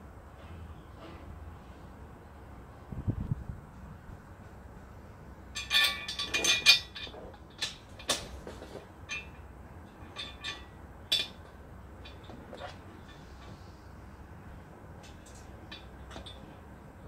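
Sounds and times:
bolt clinking on metal frame: 5.6s - 8.4s, 9.1s - 13.3s.

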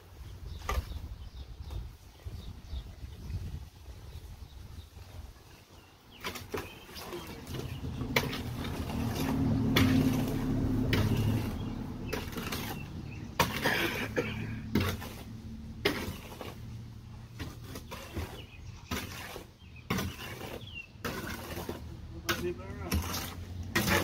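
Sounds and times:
engine running low: 7.1s - 18.8s.

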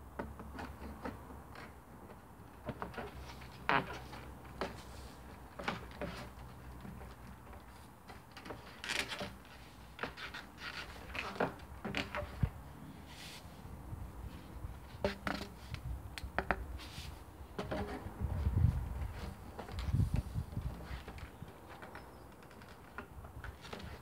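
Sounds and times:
plastic knocking and scraping: 14.9s - 16.9s, 17.6s - 24.0s.

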